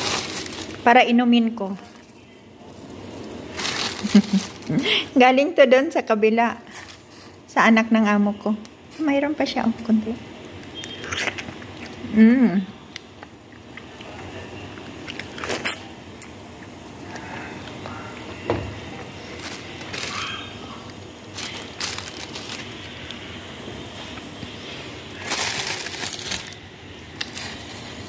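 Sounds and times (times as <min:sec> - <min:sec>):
plastic bag rustling: 0:00.0 - 0:05.2, 0:19.1 - 0:23.3, 0:24.0 - 0:28.0.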